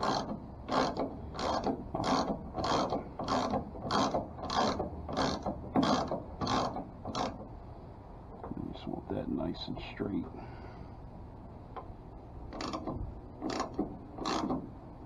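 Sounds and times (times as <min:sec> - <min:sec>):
socket ratchet rasping: 0:00.0 - 0:07.5, 0:12.5 - 0:14.8.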